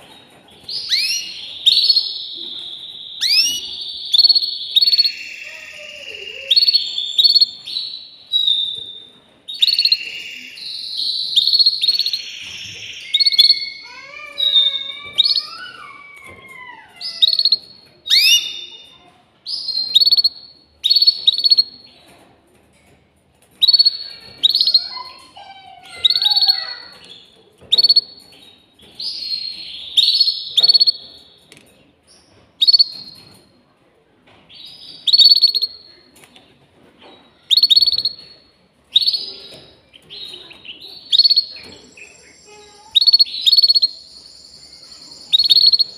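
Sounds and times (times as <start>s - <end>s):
canary singing: 0.0s - 21.9s, 23.5s - 31.5s, 32.2s - 33.5s, 34.5s - 36.3s, 37.0s - 45.9s.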